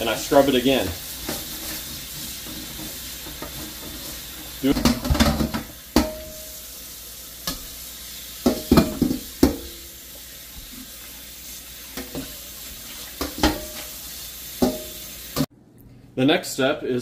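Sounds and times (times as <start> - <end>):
tap water running into wok: 0.0 - 15.5
wok clanking against sink: 4.7 - 6.4, 8.4 - 9.9, 13.2 - 13.9, 14.6 - 15.5.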